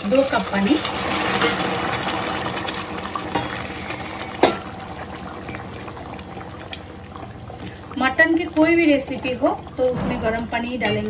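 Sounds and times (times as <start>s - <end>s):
water pouring into a wok: 0.0s - 10.5s.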